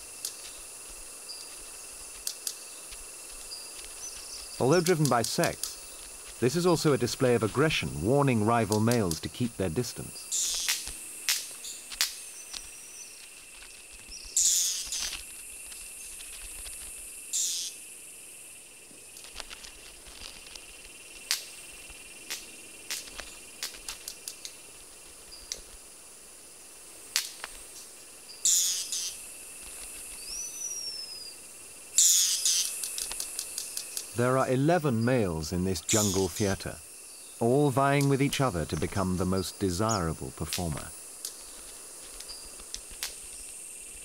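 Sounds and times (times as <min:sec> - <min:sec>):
high insect drone: 0:00.0 - 0:44.0
bird wing snaps: 0:10.4 - 0:17.7, 0:19.1 - 0:21.6, 0:22.2 - 0:24.6, 0:27.1 - 0:27.6, 0:41.2 - 0:43.5.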